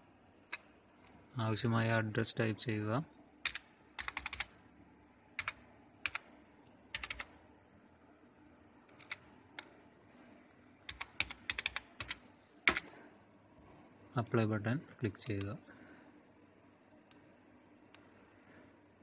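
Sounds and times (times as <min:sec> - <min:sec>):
computer keyboard keys clicking: 0:03.4 - 0:04.5, 0:05.4 - 0:06.3, 0:06.9 - 0:07.3, 0:08.9 - 0:09.7, 0:10.9 - 0:12.9.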